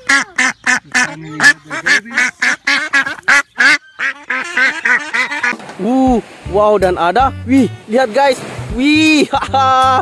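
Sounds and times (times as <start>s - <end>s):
duck quacking rapidly: 0.0s - 5.6s.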